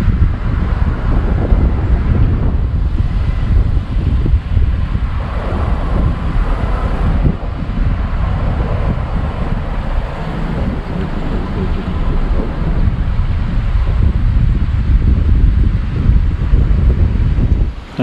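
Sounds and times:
wind buffeting microphone: 0.0 - 18.0
car rumbling over wooden planks: 5.2 - 14.0.

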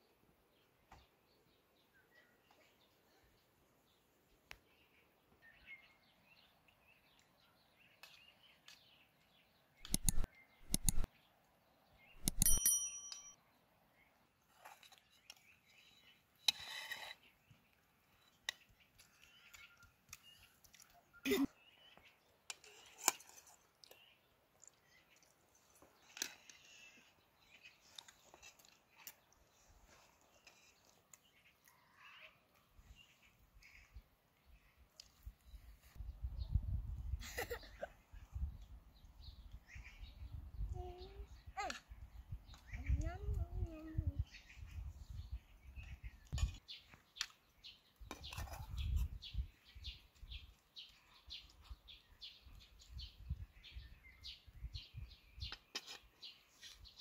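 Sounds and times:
metal spoons clicking: 9.9 - 11.1, 12.2 - 13.4
metal spoons scraping steel plates: 12.2 - 13.4
faint bird chirps: 26.1 - 36.8.

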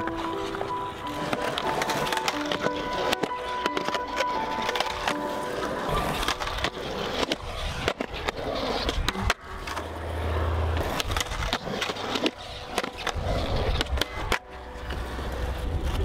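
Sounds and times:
skateboard clacking: 0.0 - 16.0
skateboard grinding metal rail: 0.0 - 16.0
skateboard wheels rolling on concrete: 0.0 - 16.0.

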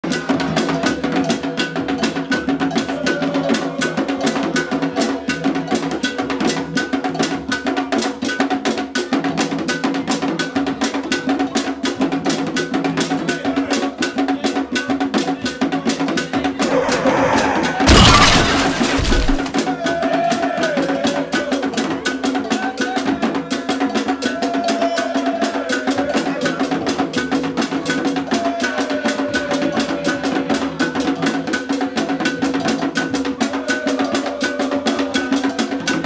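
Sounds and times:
music with drum beat: 0.0 - 17.3
loud burst of crash noise: 16.6 - 19.6.

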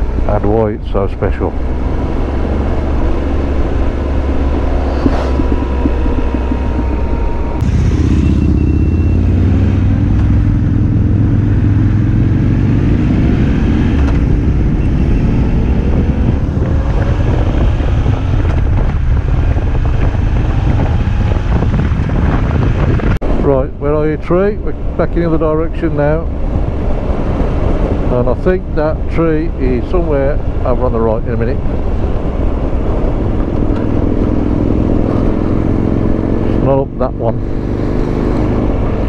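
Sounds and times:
wind rush: 1.5 - 11.3, 12.7 - 36.6
motorcycle engine running: 2.4 - 12.5.

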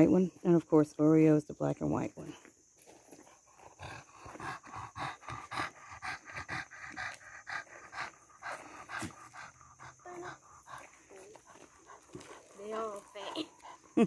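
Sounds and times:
dog panting rapidly: 3.1 - 14.0.

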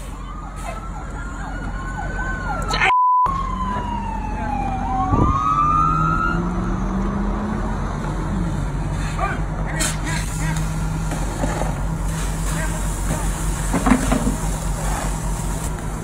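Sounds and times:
fire truck siren wailing: 0.0 - 16.0
censor bleep: 2.9 - 3.3.

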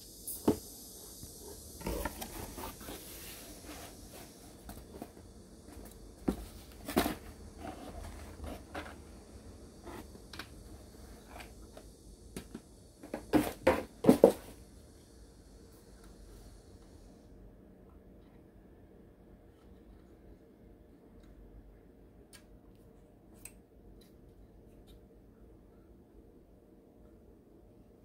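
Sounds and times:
cardboard rustle: 1.8 - 9.0.

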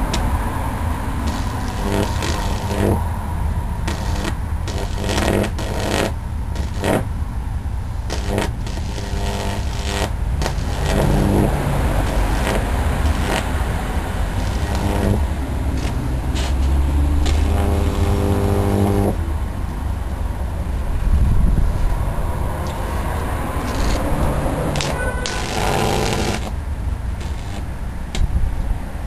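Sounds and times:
mains buzz of electric arc: 1.1 - 7.2, 8.0 - 19.2, 23.6 - 27.9
arc crackling snaps: 1.2 - 3.0, 3.8 - 7.1, 8.0 - 19.2, 23.6 - 24.1, 24.7 - 28.2.

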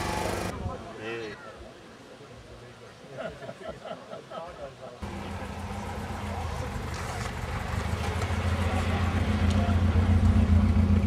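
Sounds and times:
car engine running: 0.0 - 0.5.

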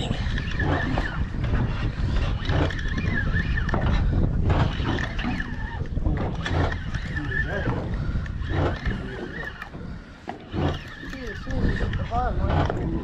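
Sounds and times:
boat noise: 0.0 - 13.0
wind on microphone: 0.0 - 13.0.

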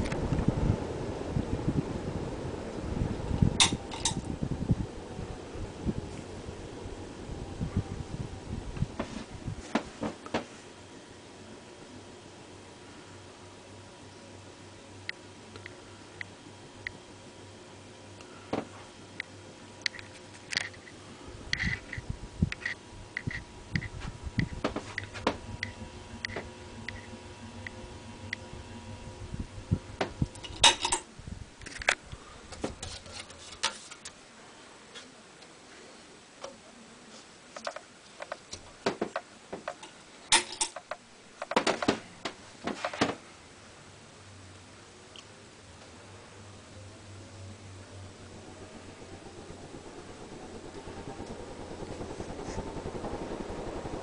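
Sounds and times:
ceiling fan humming: 0.0 - 54.0
low thumps and rumbles: 23.7 - 27.0
clicks and knocks on fan housing: 37.6 - 43.2.

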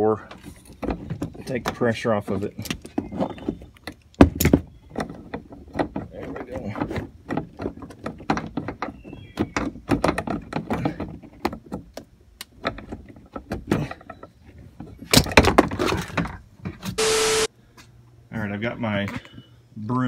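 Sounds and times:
loud steady buzzing: 17.0 - 17.5.

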